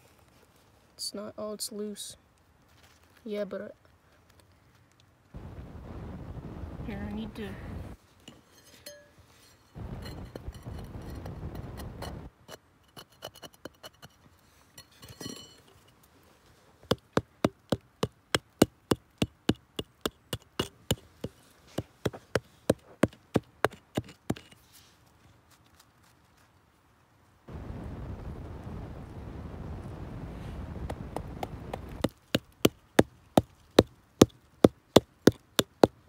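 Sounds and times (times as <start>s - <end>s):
low rumble: 5.4s - 8.0s, 27.5s - 32.0s.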